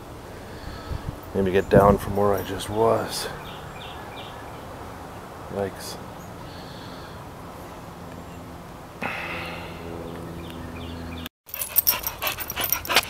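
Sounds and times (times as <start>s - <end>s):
low hum: 7.6s - 11.3s
dog panting and snuffling: 11.5s - 13.0s.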